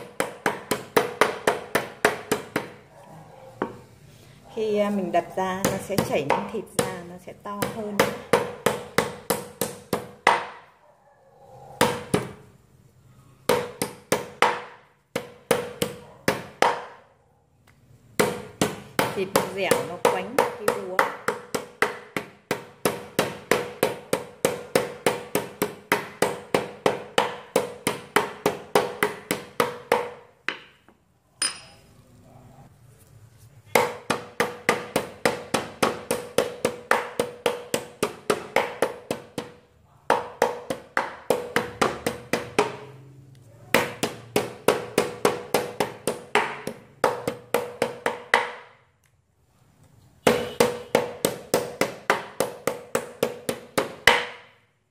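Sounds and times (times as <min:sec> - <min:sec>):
meat mallet pounding on board: 0:00.0 - 0:02.8, 0:05.6 - 0:10.7, 0:11.8 - 0:12.4, 0:13.5 - 0:17.0, 0:18.1 - 0:30.8, 0:33.7 - 0:43.0, 0:43.7 - 0:48.8, 0:50.2 - 0:54.6.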